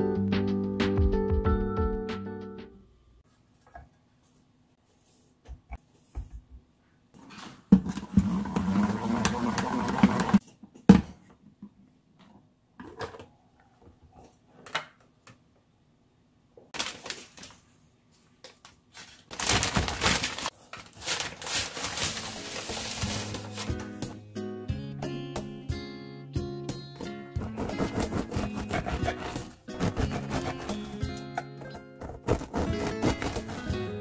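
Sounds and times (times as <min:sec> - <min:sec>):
salad spinner whirring: 0:08.1 - 0:10.4
paper bag rustling: 0:16.8 - 0:17.8, 0:18.5 - 0:24.2.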